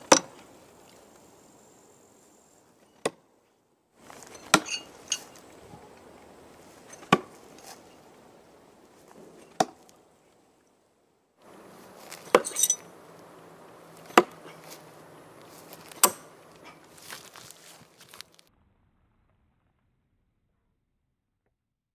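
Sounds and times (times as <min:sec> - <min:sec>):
knives thudding into wooden log: 0:04.2 - 0:05.4, 0:06.9 - 0:07.3, 0:12.2 - 0:12.8, 0:14.1 - 0:14.5, 0:15.9 - 0:16.4
brief metallic ring: 0:12.4 - 0:12.9.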